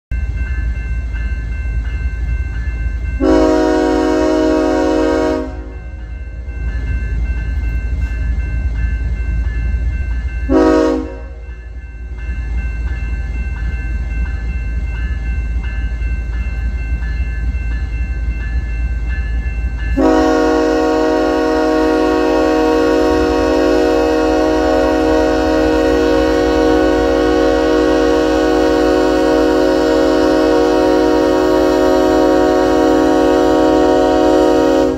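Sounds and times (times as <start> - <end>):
train rumbling: 0.1 - 34.9
locomotive air horn blasts: 3.2 - 5.7, 10.5 - 11.4, 20.0 - 34.9.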